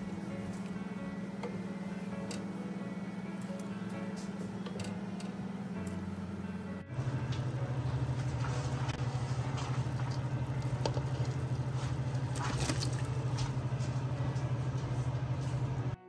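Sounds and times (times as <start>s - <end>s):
steady low hum: 0.0s - 16.0s
pot of broth bubbling: 6.9s - 14.2s.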